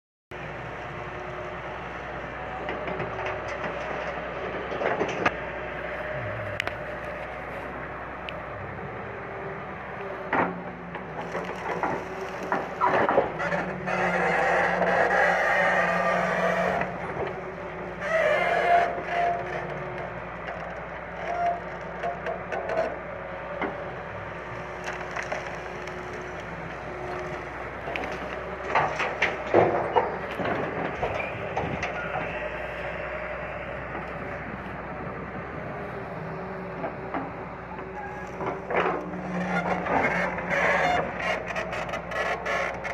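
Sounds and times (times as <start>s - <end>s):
excavator engine running: 0.4s - 42.9s
brush cracking and snapping: 11.2s - 13.2s, 24.4s - 30.6s.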